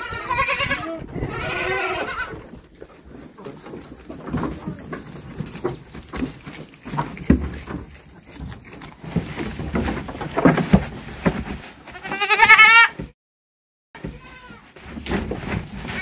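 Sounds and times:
goat bleating: 0:00.0 - 0:02.6, 0:11.8 - 0:13.1, 0:14.0 - 0:14.8
knocks and rustling: 0:02.0 - 0:12.0, 0:14.0 - 0:16.0.

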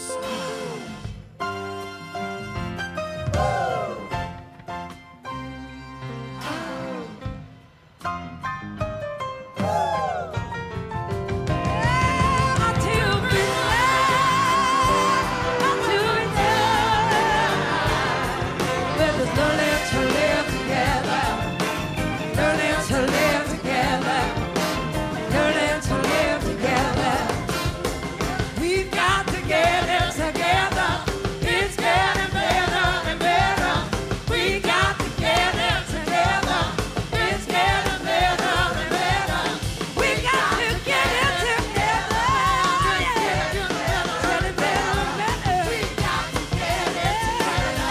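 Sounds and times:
drums beating: 0:03.1 - 0:04.5, 0:09.6 - 0:47.9
live rock blues band: 0:11.1 - 0:47.9.

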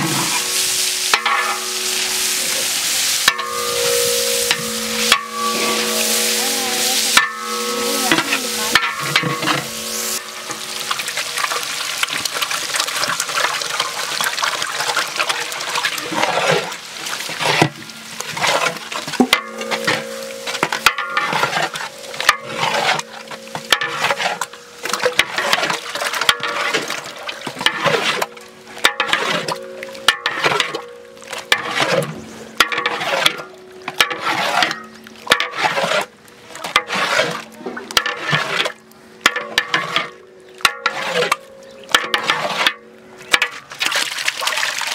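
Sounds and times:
loud hiss: 0:00.0 - 0:11.0
metal spatula scraping a pot: 0:00.0 - 0:11.7, 0:16.2 - 0:43.6
eggs and onions sizzling: 0:00.0 - 0:16.0, 0:16.7 - 0:31.8.

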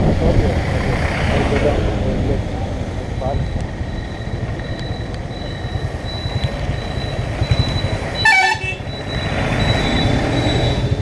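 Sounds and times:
motorcycle engine and wind rumble: 0:00.0 - 0:09.8
vehicle horn honking: 0:08.2 - 0:08.9.

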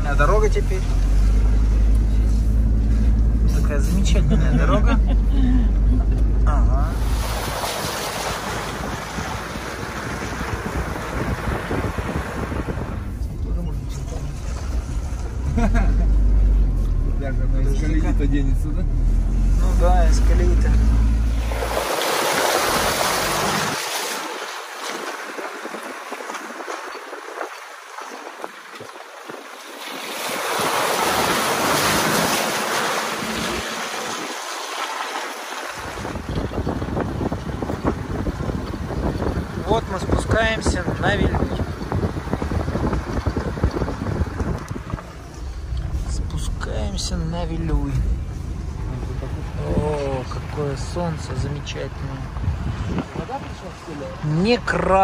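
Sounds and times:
tyres on wet dirt road: 0:00.0 - 0:55.0
wind rushing over microphone: 0:05.0 - 0:15.3, 0:35.6 - 0:50.3, 0:52.2 - 0:54.3
tyre splashing through puddle: 0:06.9 - 0:13.0, 0:19.4 - 0:46.9.

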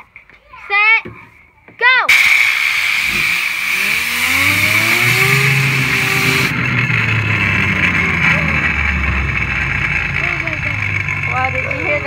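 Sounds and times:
air blow gun hissing: 0:02.1 - 0:06.5
fidget spinner whirring: 0:02.2 - 0:12.0.

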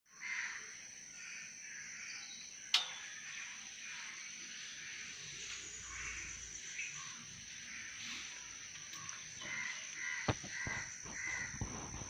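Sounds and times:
sharp click: 0:02.7 - 0:03.2.

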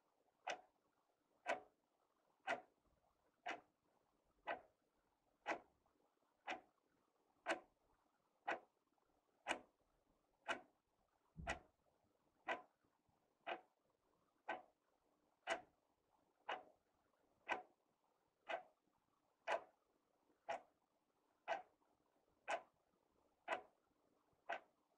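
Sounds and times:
wall clock ticking: 0:00.4 - 0:00.7, 0:01.4 - 0:01.8, 0:02.4 - 0:02.8, 0:03.4 - 0:03.7, 0:04.4 - 0:04.8, 0:05.4 - 0:05.8, 0:06.4 - 0:06.7, 0:07.4 - 0:07.8, 0:08.4 - 0:08.8, 0:09.4 - 0:09.8, 0:10.4 - 0:10.8, 0:11.4 - 0:11.8, 0:12.4 - 0:12.7, 0:13.4 - 0:13.8, 0:14.4 - 0:14.8, 0:15.4 - 0:15.8, 0:16.4 - 0:16.8, 0:17.4 - 0:17.8, 0:18.4 - 0:18.8, 0:19.4 - 0:19.8, 0:20.4 - 0:20.8, 0:21.4 - 0:21.8, 0:22.4 - 0:22.8, 0:23.4 - 0:23.8, 0:24.4 - 0:24.8.

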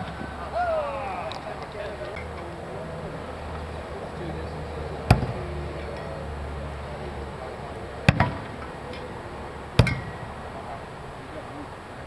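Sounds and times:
blades thunking into target: 0:08.1 - 0:08.6.

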